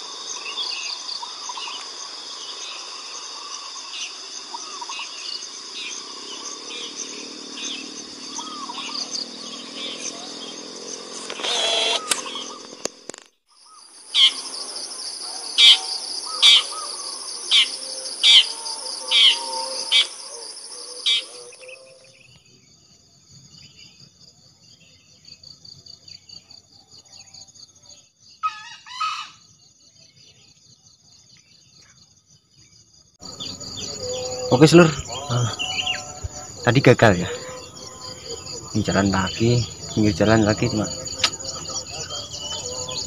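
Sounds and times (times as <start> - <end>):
insects droning: 0.0 - 43.0
two-part bird call: 15.6 - 22.1.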